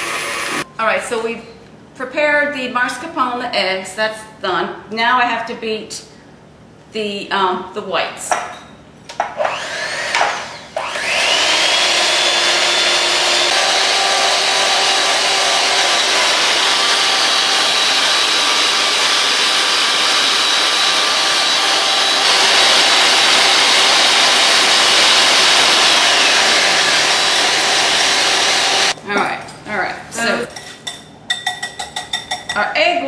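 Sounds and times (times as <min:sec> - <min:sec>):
electric mixer whining: 0:00.0 - 0:00.6, 0:09.4 - 0:29.0.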